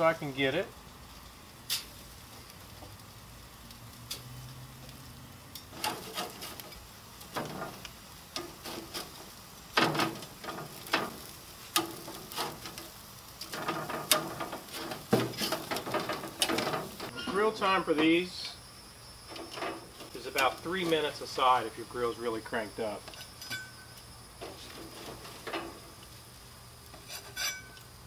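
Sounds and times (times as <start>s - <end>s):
fish sizzling on a grill pan: 0.0s - 28.0s
metal spatula scraping pan: 5.6s - 7.8s, 8.4s - 12.9s, 13.5s - 17.6s, 26.9s - 27.8s.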